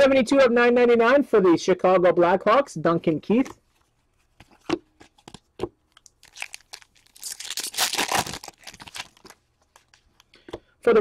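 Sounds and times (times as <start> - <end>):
foil wrapper crinkling: 5.9 - 10.3.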